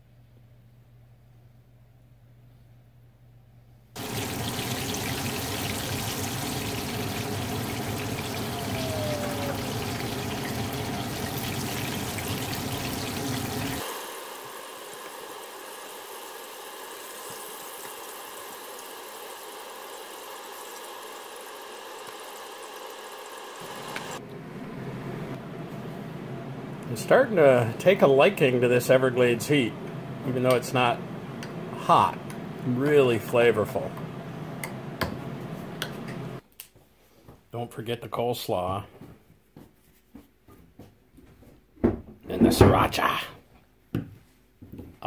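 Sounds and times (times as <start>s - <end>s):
fish fillets frying in oil: 4.0s - 24.2s.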